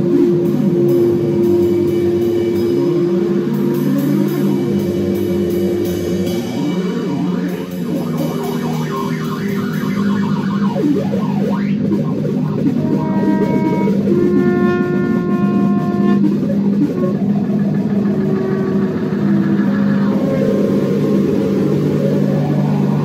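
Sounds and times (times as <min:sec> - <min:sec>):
electric bass guitar droning: 0:00.0 - 0:23.0
trombone note: 0:12.4 - 0:21.2.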